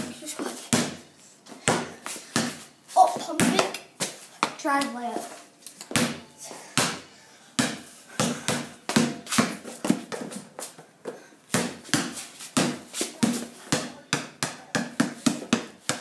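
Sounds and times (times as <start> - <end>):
basketball bouncing on concrete: 0.0 - 1.0, 1.6 - 2.6, 3.2 - 3.8, 5.9 - 6.2, 6.8 - 7.0, 7.6 - 10.5, 11.5 - 16.0.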